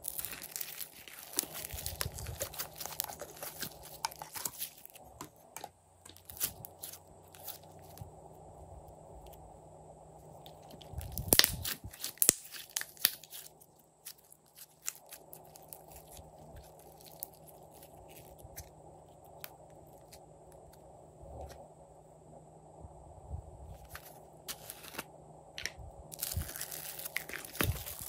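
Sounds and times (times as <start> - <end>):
slime crackles: 0.0 - 5.3, 6.1 - 8.0, 10.4 - 20.2, 26.1 - 28.0.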